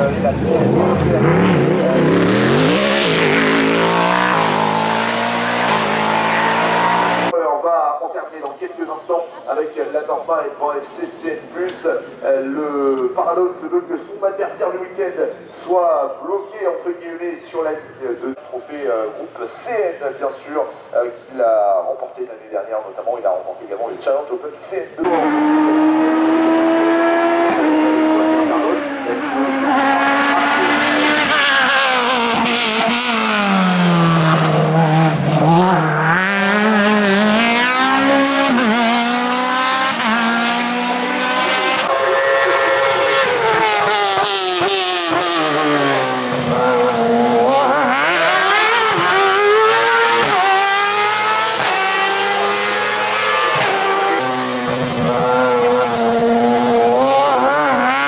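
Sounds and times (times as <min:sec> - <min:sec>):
race car engine revving: 0:00.0 - 0:07.4, 0:25.0 - 0:58.0.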